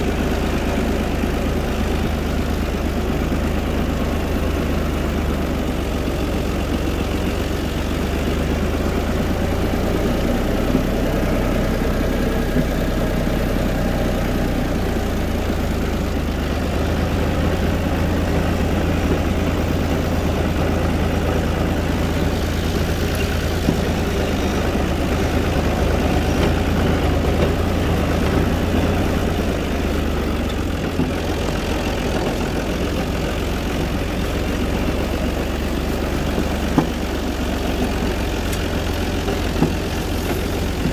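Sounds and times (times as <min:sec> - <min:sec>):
tractor diesel engine droning: 0:00.0 - 0:40.9.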